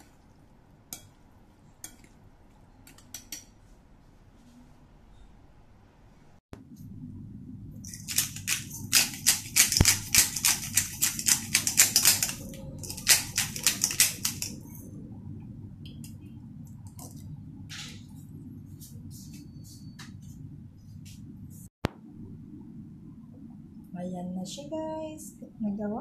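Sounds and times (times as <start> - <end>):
low steady hum: 0.0 - 26.0
pepper grinder grinding: 7.9 - 14.6.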